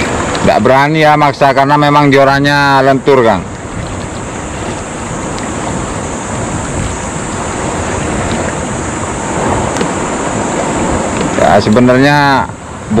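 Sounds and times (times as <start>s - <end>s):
waves: 0.0s - 13.0s
wind: 0.0s - 13.0s.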